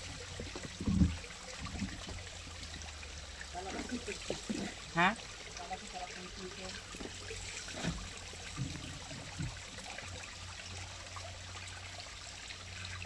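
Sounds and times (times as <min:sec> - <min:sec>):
water trickling down rock: 0:00.0 - 0:13.0
low thumps: 0:00.2 - 0:02.4.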